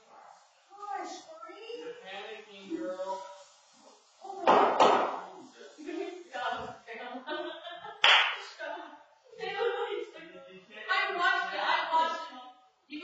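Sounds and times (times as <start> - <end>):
sharp smack: 4.4 - 5.3.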